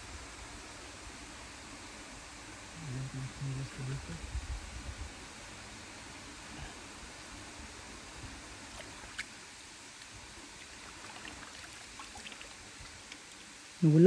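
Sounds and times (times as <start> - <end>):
steady hiss: 0.0 - 14.0
small splashes and drips: 8.7 - 13.6.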